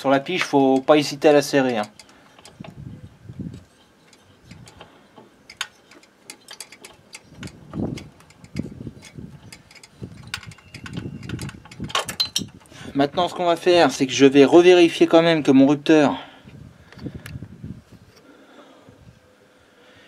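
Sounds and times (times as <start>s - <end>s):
small metal tools clicking: 0.4s - 2.8s, 3.5s - 12.7s.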